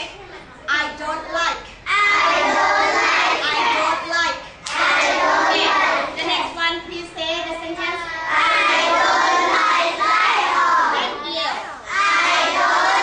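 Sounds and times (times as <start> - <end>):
children singing in unison: 2.0 - 3.7, 4.7 - 6.1, 8.3 - 11.2, 11.9 - 13.0.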